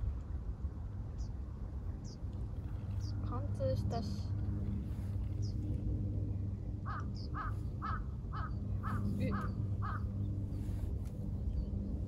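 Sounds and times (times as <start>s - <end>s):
steady low hum: 0.0s - 12.0s
crow cawing: 6.8s - 10.1s.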